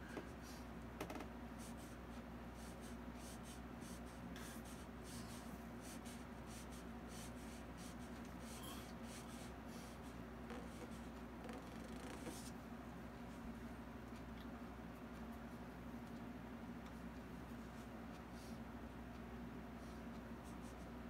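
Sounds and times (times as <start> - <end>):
steady low hum: 0.0 - 21.0
brush scratching on canvas: 2.6 - 12.5.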